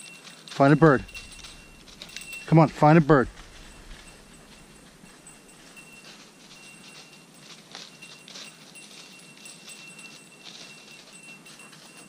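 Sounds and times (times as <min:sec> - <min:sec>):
faint metallic jingle: 0:00.0 - 0:12.0
footsteps crunching through leaves: 0:00.0 - 0:12.0.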